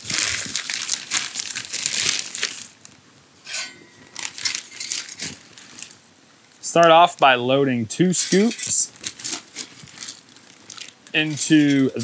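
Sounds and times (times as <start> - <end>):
plastic bag crinkling: 0.0 - 3.0, 3.9 - 6.0, 8.1 - 12.0.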